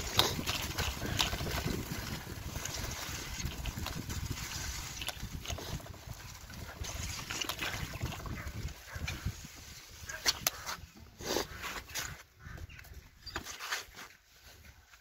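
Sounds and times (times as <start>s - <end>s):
splashes: 0.0s - 8.6s
bicycle tyres rolling through slush: 0.0s - 10.4s.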